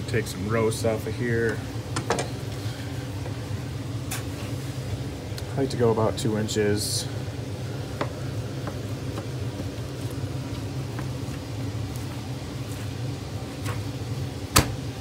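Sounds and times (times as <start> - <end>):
low machine hum: 0.0 - 15.0.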